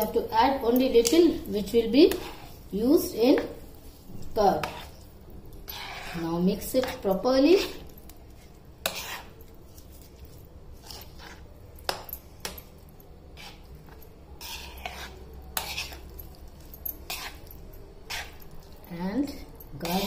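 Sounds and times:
soft squishing: 0:00.0 - 0:20.0
spoon clinking and scraping plate: 0:04.6 - 0:20.0.

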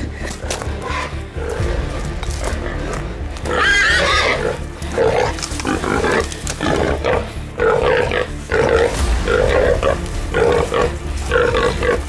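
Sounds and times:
wild boar grunting: 0:00.0 - 0:12.0
wild boar squealing: 0:02.8 - 0:12.0.

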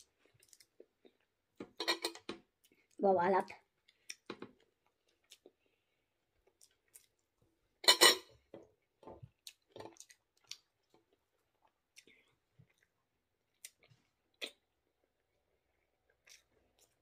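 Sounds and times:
chewing and lip smacks: 0:03.8 - 0:05.8, 0:06.4 - 0:07.4, 0:09.3 - 0:14.7, 0:16.1 - 0:17.0.

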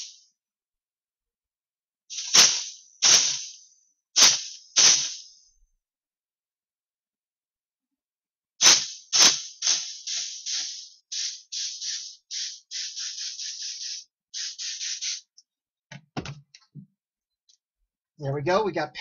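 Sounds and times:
spray gun hissing bursts: 0:02.1 - 0:03.6, 0:04.2 - 0:05.3, 0:08.6 - 0:15.4.

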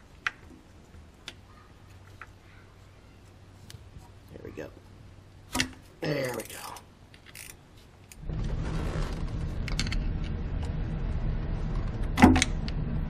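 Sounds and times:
steady low hum: 0:06.8 - 0:13.0.

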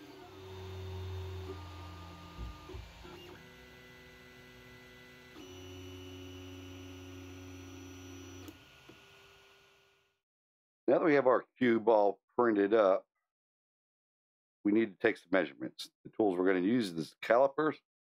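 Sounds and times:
stepper motors whining: 0:00.0 - 0:07.0.

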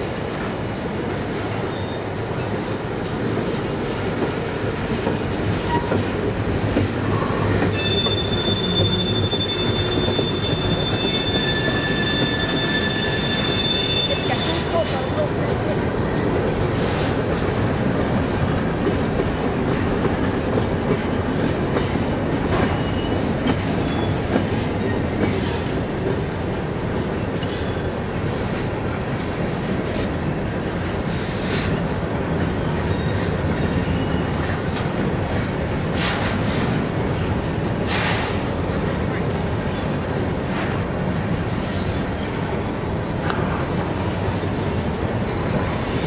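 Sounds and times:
train wheels rumbling on rail: 0:00.0 - 0:46.0
high-pitched wheel screeches: 0:07.7 - 0:15.2.

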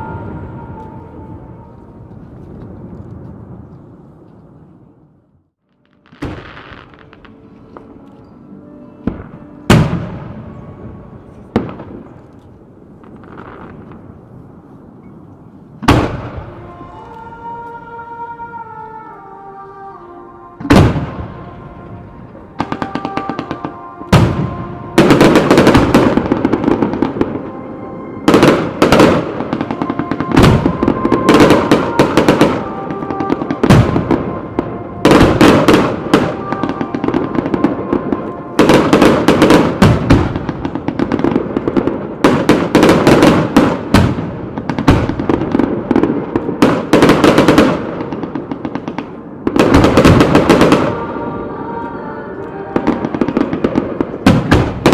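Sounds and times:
music: 0:00.0 - 0:03.1, 0:05.6 - 0:13.5, 0:15.8 - 0:54.9
firework bangs: 0:22.6 - 0:27.5, 0:28.3 - 0:51.2, 0:52.8 - 0:54.9
firework crackling: 0:28.3 - 0:54.9.

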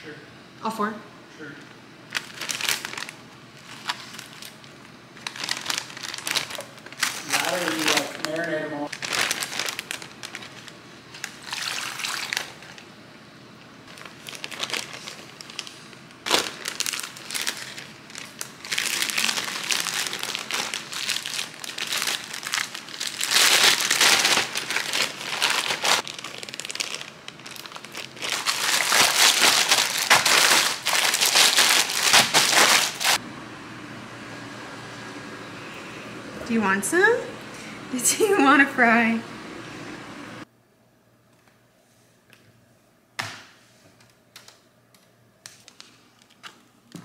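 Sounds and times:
plastic packaging crinkling: 0:02.1 - 0:12.9, 0:13.8 - 0:33.2.

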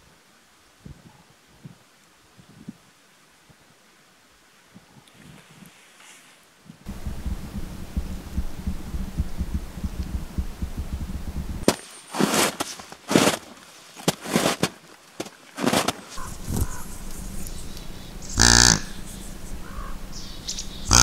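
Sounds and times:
wind buffeting microphone: 0:06.9 - 0:11.6, 0:16.2 - 0:21.0
boots crunching through snow: 0:11.6 - 0:17.4.

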